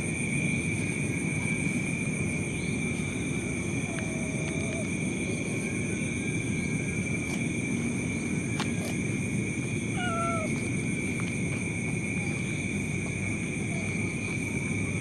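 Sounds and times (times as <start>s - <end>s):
crickets chirping: 0.0s - 15.0s
faint cat meow: 9.9s - 10.6s.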